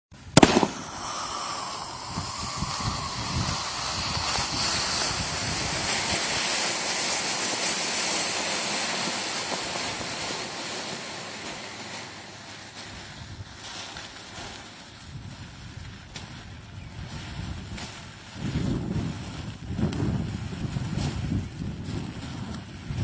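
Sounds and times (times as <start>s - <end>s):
sharp pop: 0.3s - 12.2s
smoke grenade hissing: 0.3s - 15.0s.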